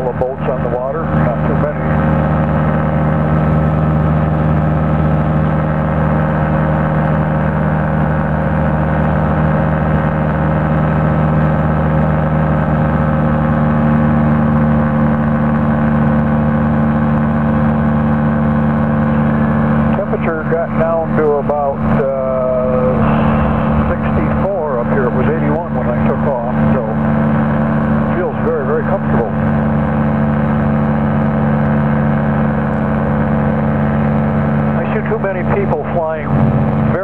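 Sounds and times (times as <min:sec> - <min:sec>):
light aircraft engine droning: 0:00.0 - 0:37.0.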